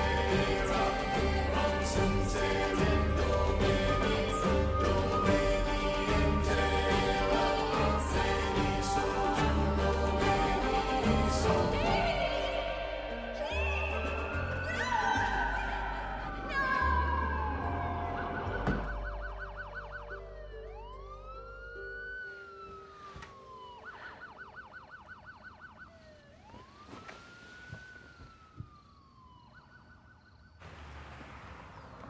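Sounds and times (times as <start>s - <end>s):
police siren yelp and wail: 14.2s - 30.6s.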